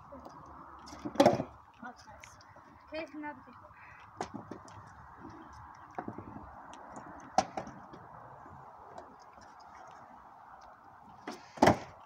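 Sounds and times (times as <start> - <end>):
skateboard knocking on concrete: 0.8 - 1.6.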